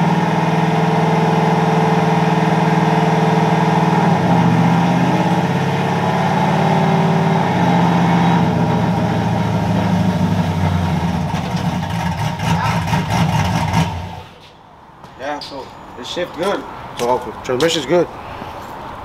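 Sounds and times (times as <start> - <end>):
truck engine running: 0.0 - 14.6.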